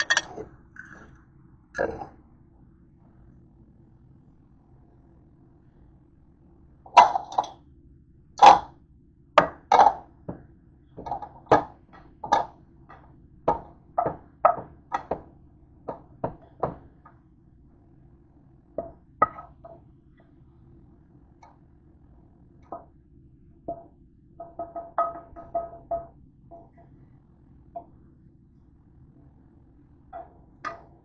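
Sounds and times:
utensils knocking against dishes: 0.0s - 0.9s.

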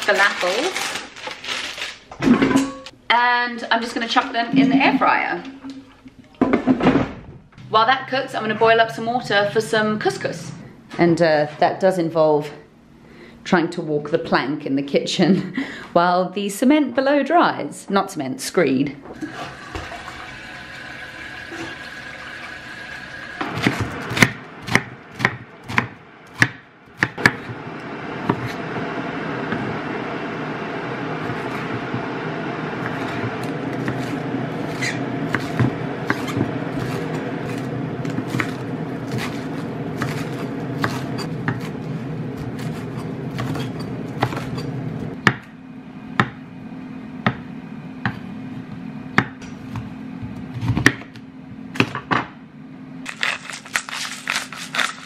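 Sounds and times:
tap water running into kettle: 19.1s - 23.4s
kettle heating rushing noise: 19.2s - 45.2s
knife chopping on wooden board: 23.5s - 27.5s, 32.8s - 41.8s.

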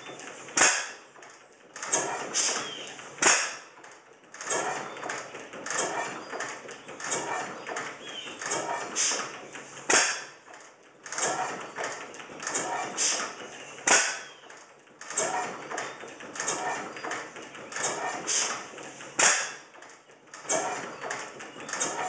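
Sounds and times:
stationary engine clattering: 0.0s - 22.0s.

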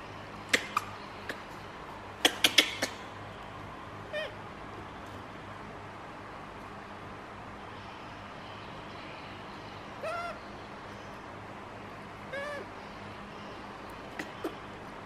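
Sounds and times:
baby macaque high calls: 2.2s - 3.1s, 4.1s - 4.4s, 10.0s - 10.5s, 12.3s - 12.8s.

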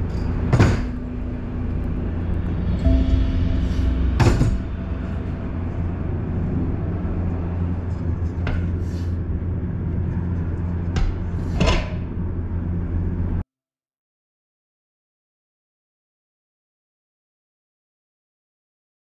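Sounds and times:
steady low hum: 0.0s - 13.4s.

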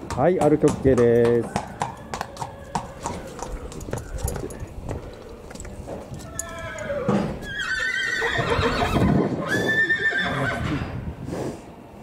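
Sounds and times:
horse whinnying: 1.8s - 4.3s, 6.2s - 11.0s.

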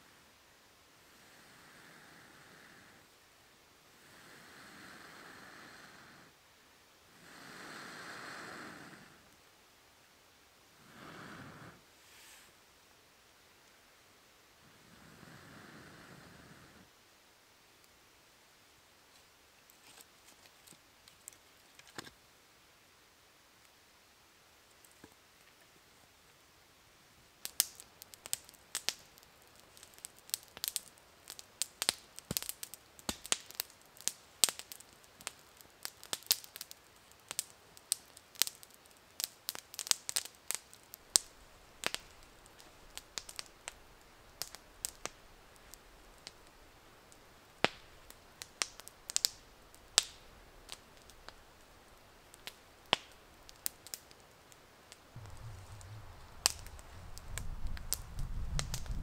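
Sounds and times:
campfire crackling and popping: 27.2s - 59.0s.

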